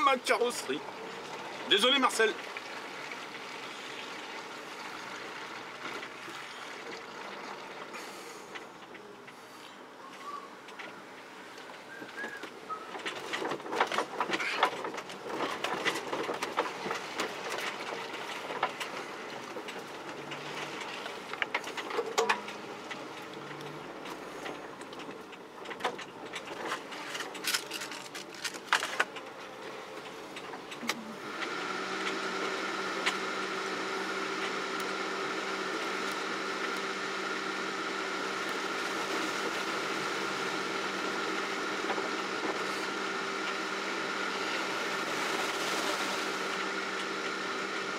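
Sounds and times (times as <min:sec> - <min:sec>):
off-road vehicle driving: 0:00.0 - 0:47.9
knocks and rattles over bumps: 0:11.6 - 0:47.9.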